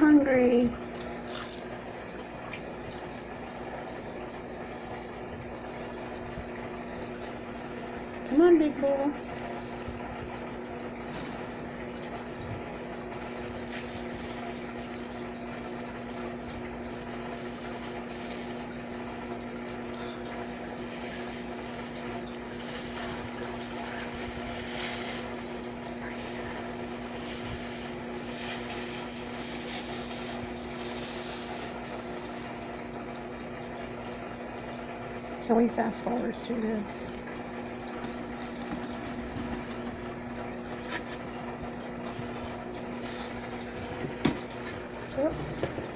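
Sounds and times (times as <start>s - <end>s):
steady low hum: 0.0s - 45.9s.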